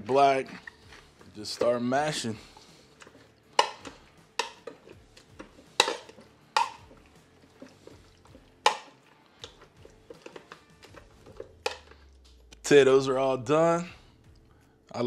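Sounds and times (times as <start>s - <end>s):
potato masher mashing potatoes: 0.0s - 12.3s
masher knocking against pot: 3.6s - 4.8s, 5.4s - 7.0s.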